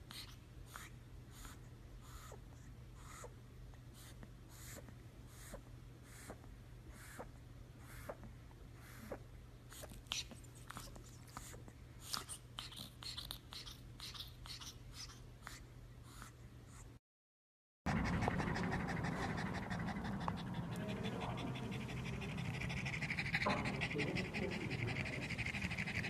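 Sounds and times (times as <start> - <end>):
dog panting rapidly: 17.9 - 26.0.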